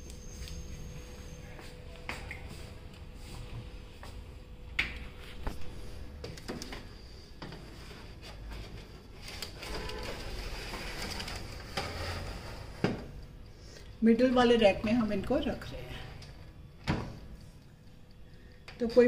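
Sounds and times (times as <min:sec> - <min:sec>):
baking tray scraping on rails: 0:07.5 - 0:13.2.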